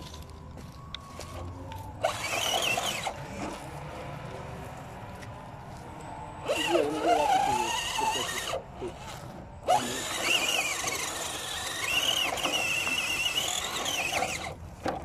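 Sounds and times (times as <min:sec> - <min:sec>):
electric motor whirring: 0:01.9 - 0:03.7, 0:06.4 - 0:15.0.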